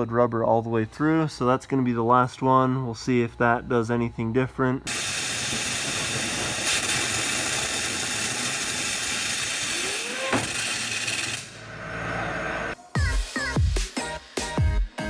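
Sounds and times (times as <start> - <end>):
waterjet hissing: 4.9 - 11.7
short rising tone: 5.3 - 12.8.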